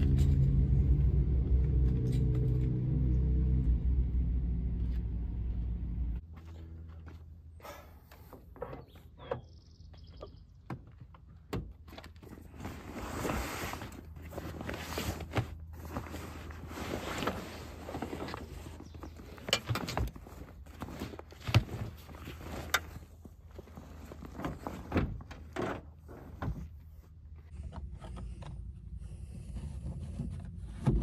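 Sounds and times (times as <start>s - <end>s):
fabric bag rustling and scraping: 12.4s - 18.9s.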